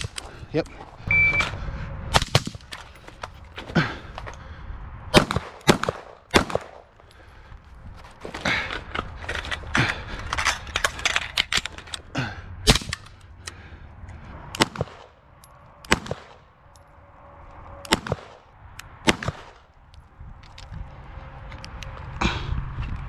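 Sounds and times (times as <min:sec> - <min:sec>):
gunshots: 0:05.1 - 0:06.8, 0:14.6 - 0:15.2, 0:15.9 - 0:16.5, 0:17.9 - 0:19.6.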